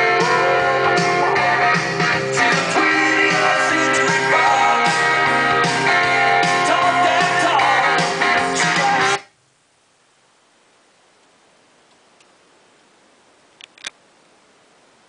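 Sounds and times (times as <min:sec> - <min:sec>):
rock song on vinyl record: 0:00.0 - 0:09.4.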